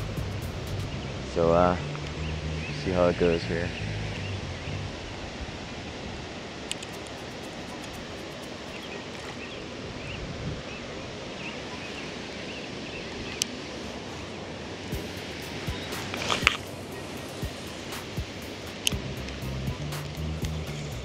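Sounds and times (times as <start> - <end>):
breeze hissing: 0.0 - 21.0
rippling water: 0.0 - 21.0
sharp clicks: 6.7 - 8.1, 17.4 - 20.8
faint bird chirps: 6.9 - 14.4, 15.0 - 18.6.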